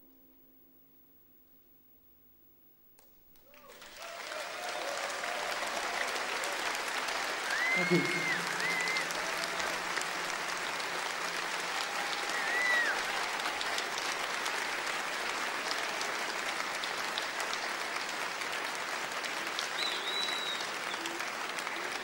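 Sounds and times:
audience applauding: 0:03.3 - 0:22.0
high whistles: 0:07.4 - 0:09.8, 0:12.2 - 0:13.2, 0:19.7 - 0:21.2.

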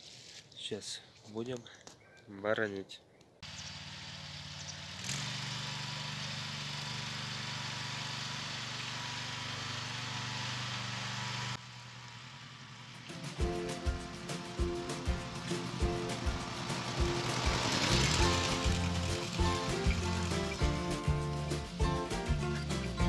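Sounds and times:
walk-behind tractor engine running: 0:03.4 - 0:23.0
music: 0:13.1 - 0:23.0.

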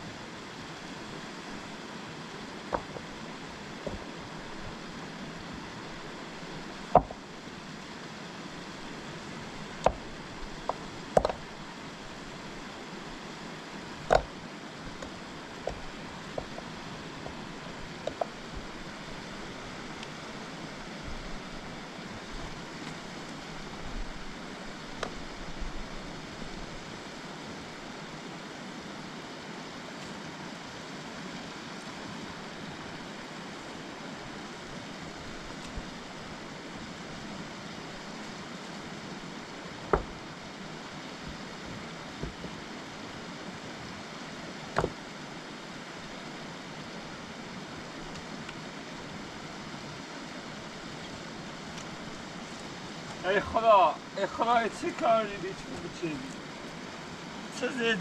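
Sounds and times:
steady rushing noise: 0:00.0 - 0:58.0
sharp knocks: 0:06.9 - 0:07.2, 0:10.7 - 0:11.4, 0:14.1 - 0:14.3, 0:39.9 - 0:40.2, 0:44.8 - 0:45.0.

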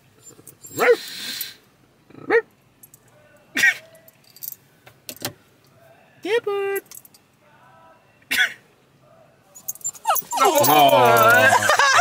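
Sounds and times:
dog barking: 0:00.8 - 0:01.1.

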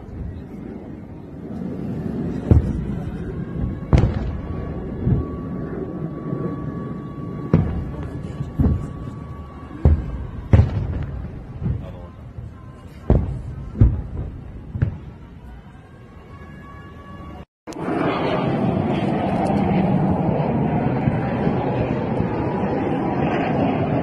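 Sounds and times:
explosions booming in the sky: 0:00.0 - 0:15.6
low rumble: 0:00.0 - 0:16.0.

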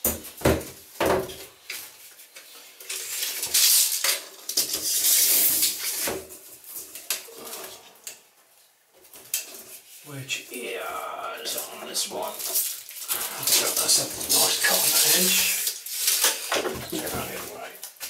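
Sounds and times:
plastic board and film rustling: 0:00.0 - 0:10.2, 0:11.4 - 0:18.0.

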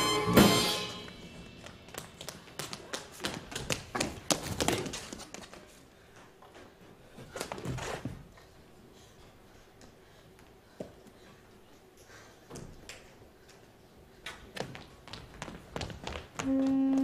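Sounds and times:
tap shoes striking stage floor: 0:14.3 - 0:17.0.

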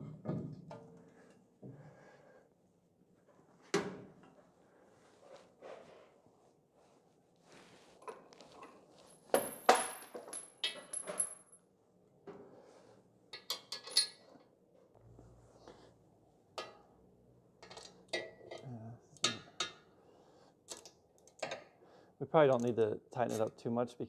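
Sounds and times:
metal tools clinking: 0:13.4 - 0:14.2.

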